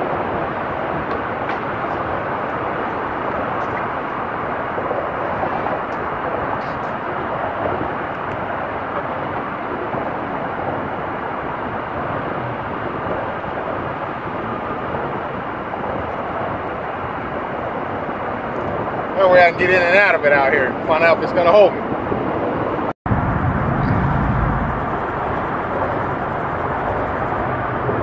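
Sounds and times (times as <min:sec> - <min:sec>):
traffic rumble overhead: 0:00.0 - 0:28.0.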